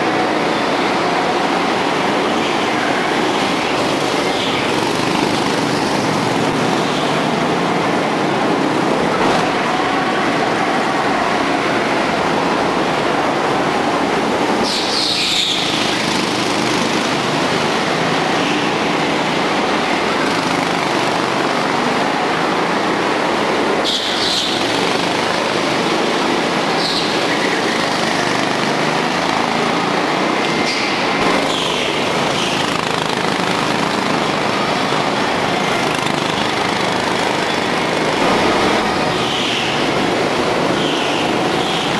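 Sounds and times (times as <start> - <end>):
go-kart engines racing: 0.0 - 41.9
high tyre squeals: 14.6 - 19.4, 23.8 - 41.9.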